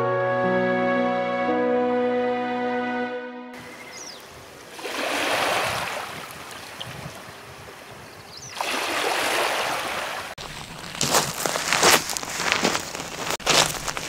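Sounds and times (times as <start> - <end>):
waves washing onto pebble shore: 4.8 - 6.3.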